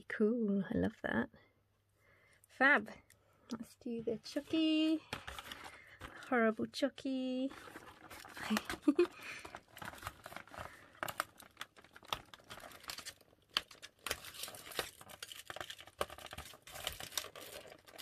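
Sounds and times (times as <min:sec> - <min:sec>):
rustling of wrapping: 0:04.2 - 0:06.5, 0:07.4 - 0:18.0.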